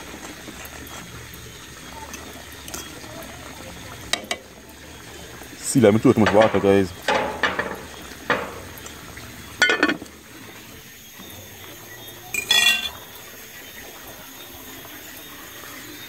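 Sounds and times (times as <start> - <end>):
pots and dishes clanking: 2.1 - 3.1, 4.1 - 4.6, 6.0 - 10.2, 12.3 - 13.2.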